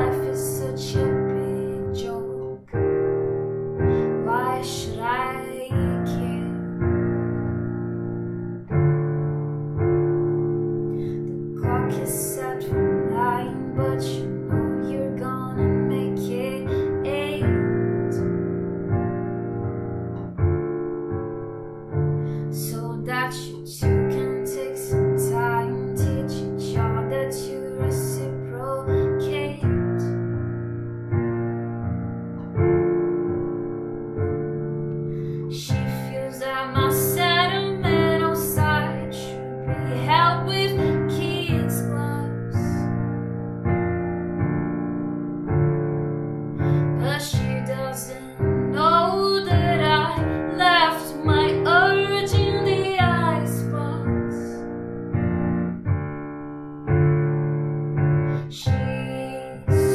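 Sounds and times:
woman singing: 0:00.0 - 0:03.1, 0:03.8 - 0:06.9, 0:11.6 - 0:18.2, 0:22.5 - 0:30.1, 0:35.4 - 0:42.9, 0:46.7 - 0:54.6, 0:58.4 - 0:59.9
digital piano chords: 0:00.0 - 0:59.9.

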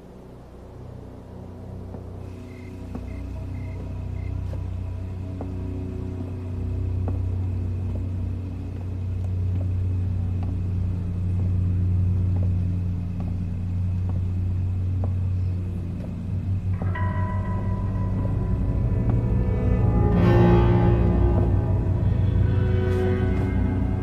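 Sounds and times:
suspense film score drone: 0:00.0 - 0:24.0.

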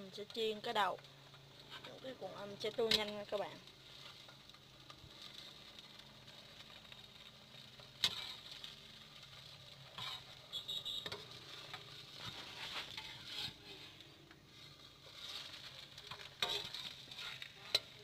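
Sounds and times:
faint oil sizzle: 0:00.0 - 0:18.0
metal spatula scraping wok: 0:06.6 - 0:18.0.

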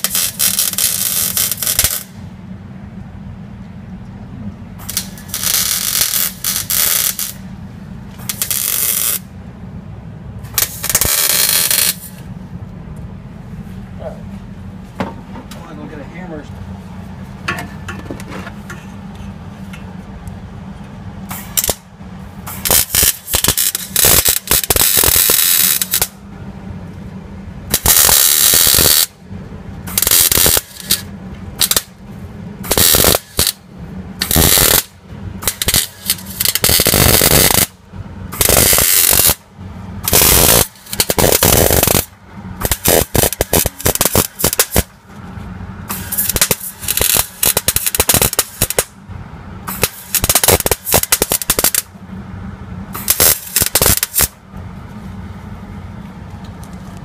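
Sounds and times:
arc welder crackling: 0:00.0 - 0:02.3, 0:04.8 - 0:09.3, 0:10.5 - 0:12.3, 0:21.2 - 0:26.3, 0:27.7 - 0:29.2, 0:29.8 - 0:49.0, 0:49.6 - 0:52.0, 0:53.0 - 0:54.4.

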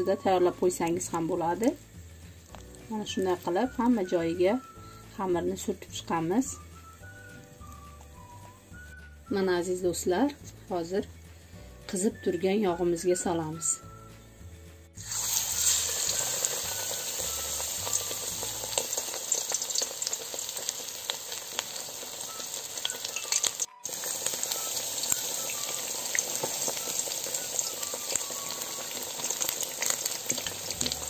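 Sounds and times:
fish frying in hot oil: 0:15.0 - 0:31.0.

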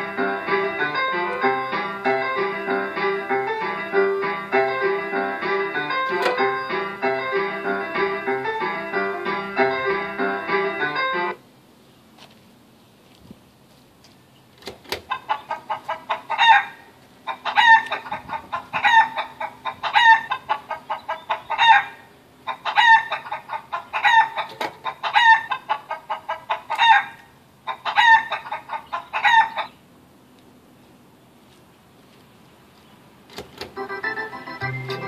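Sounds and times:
recorded hen clucking: 0:15.0 - 0:29.8.

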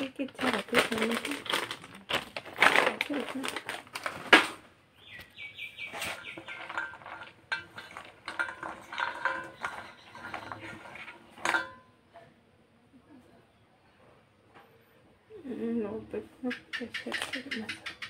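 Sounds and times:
kitchen utensils and dishes clinking: 0:05.9 - 0:12.0.

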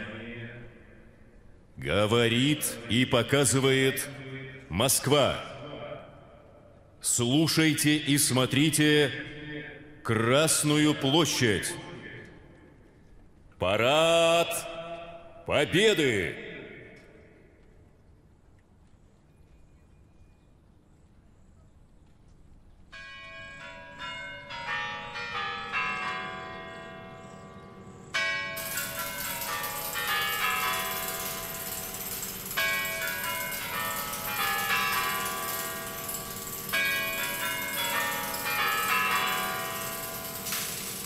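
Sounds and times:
clock tower bells chiming: 0:22.9 - 0:41.0.

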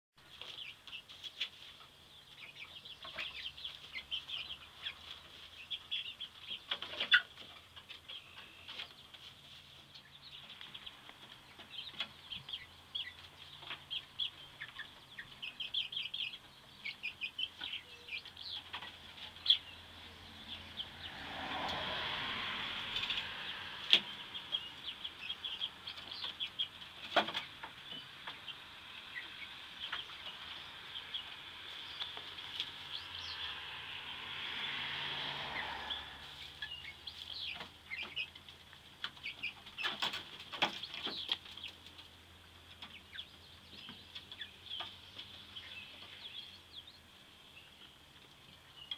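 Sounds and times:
chickens peeping: 0:00.2 - 0:48.9
rushing noise: 0:33.3 - 0:36.6.

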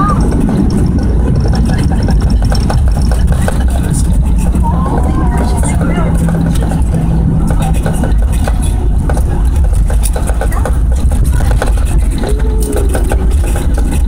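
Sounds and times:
jet engines and wheels rumbling: 0:00.0 - 0:14.0.

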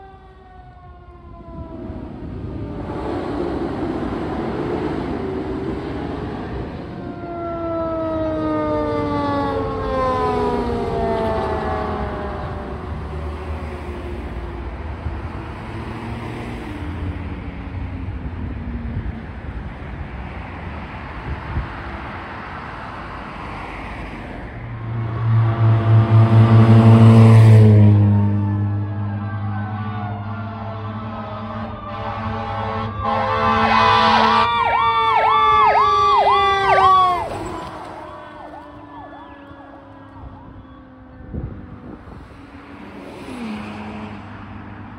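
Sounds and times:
fire engine siren winding down: 0:00.0 - 0:03.3, 0:06.2 - 0:14.7, 0:24.8 - 0:42.3
road traffic noise: 0:00.0 - 0:44.9.

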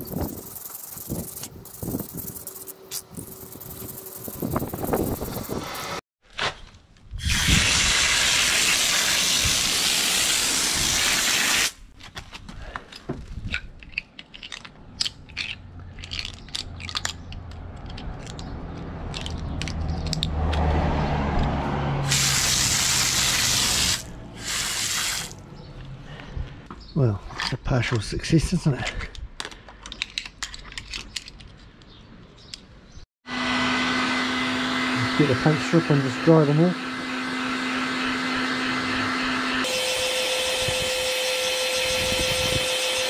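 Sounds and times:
hose nozzle spraying water on metal: 0:07.2 - 0:11.8, 0:22.1 - 0:25.4.

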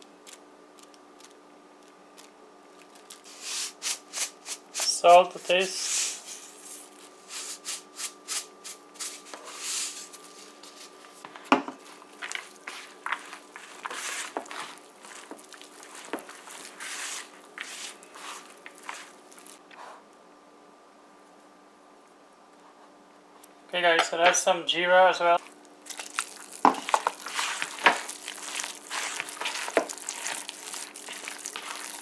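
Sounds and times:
hand mixing food in plastic bowl: 0:02.1 - 0:19.6, 0:25.4 - 0:32.0.

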